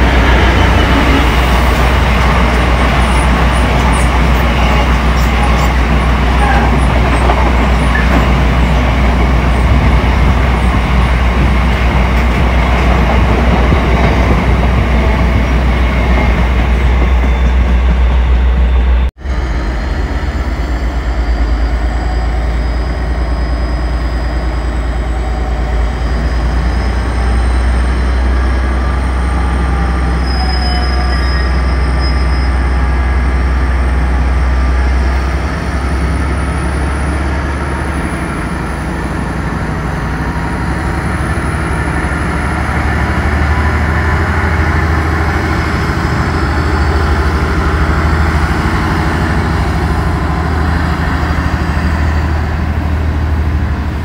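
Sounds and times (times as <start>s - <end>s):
freight train rumbling: 0.0s - 54.0s
train wheel squeals: 15.4s - 33.0s.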